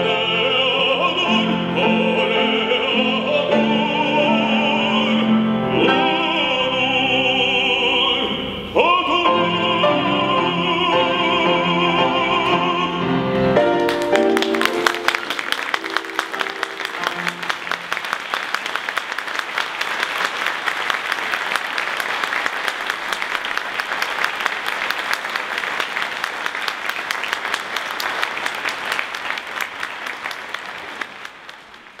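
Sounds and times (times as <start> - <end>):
piano notes: 0.0 - 18.3
audience applauding: 13.6 - 32.0.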